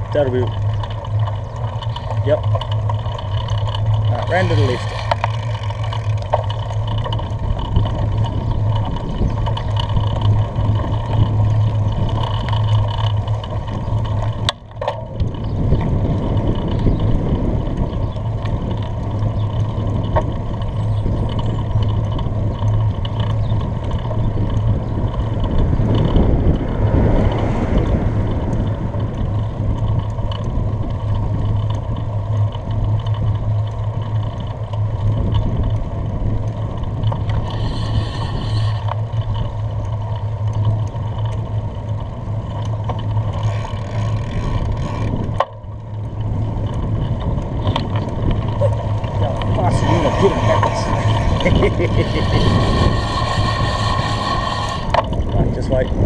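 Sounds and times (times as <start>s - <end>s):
road noise from bicycle: 0.0s - 56.0s
wind buffeting microphone: 0.0s - 56.0s.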